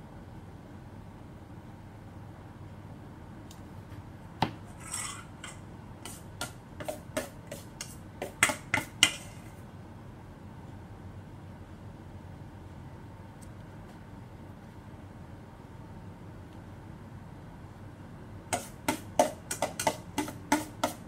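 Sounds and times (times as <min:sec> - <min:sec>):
utensils and dishes clattering: 0:04.7 - 0:05.6.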